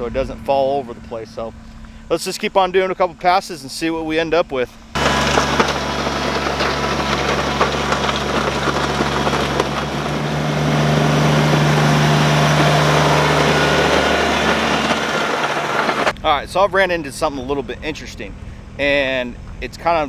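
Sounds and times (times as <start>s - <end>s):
gravel crunching: 5.0s - 16.2s
tractor diesel engine under load: 5.0s - 16.2s.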